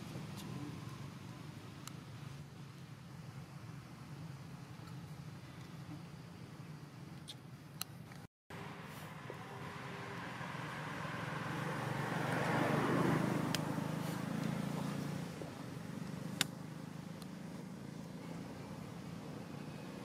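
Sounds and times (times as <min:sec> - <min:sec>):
vehicle passing by: 0:08.5 - 0:20.0
sharp clicks: 0:16.4 - 0:16.6.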